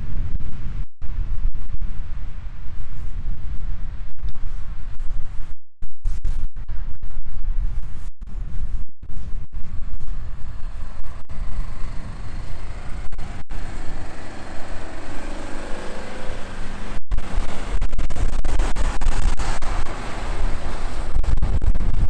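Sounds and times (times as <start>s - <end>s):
wheels spinning in snow: 0.0s - 5.5s, 6.1s - 22.0s
diesel engine working hard: 9.5s - 22.0s.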